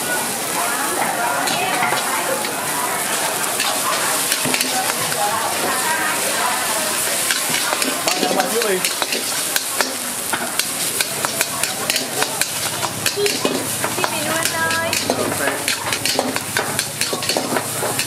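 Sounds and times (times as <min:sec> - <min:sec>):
rice sizzling in a hot wok: 0:00.0 - 0:18.0
metal spatula scraping a wok: 0:03.5 - 0:05.8, 0:06.9 - 0:18.0.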